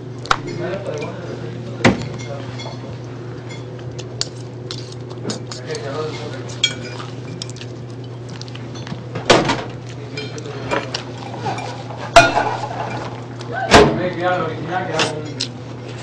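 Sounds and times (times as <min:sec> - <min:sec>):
steady low hum: 0:00.0 - 0:16.0
dishes and cutlery clinking: 0:01.9 - 0:13.2.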